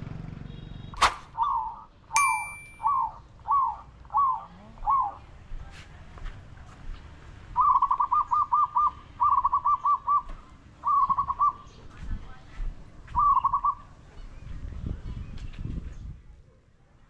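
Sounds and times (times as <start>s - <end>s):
bird calling ringing notes: 1.4s - 5.3s, 7.6s - 11.9s, 13.2s - 13.9s.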